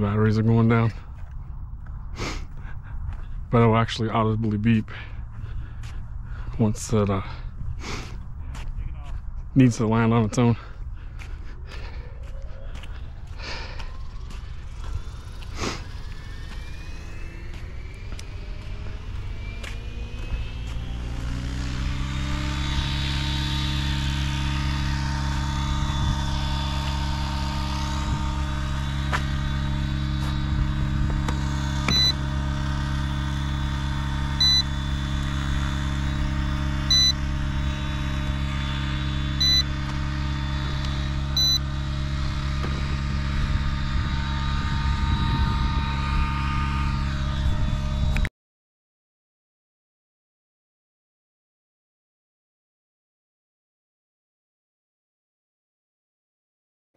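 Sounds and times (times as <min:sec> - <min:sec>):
motor drone: 0:00.0 - 0:48.3
short high-pitched beeps: 0:31.9 - 0:32.2, 0:34.4 - 0:34.7, 0:36.9 - 0:37.2, 0:39.4 - 0:39.7, 0:41.4 - 0:41.6.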